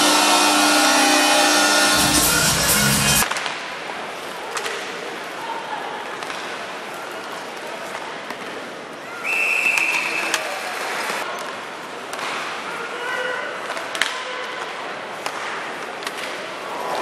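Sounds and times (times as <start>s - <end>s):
crowd noise: 0.0s - 17.0s
hockey sticks clacking puck: 6.1s - 8.7s, 11.3s - 12.6s, 13.6s - 16.7s.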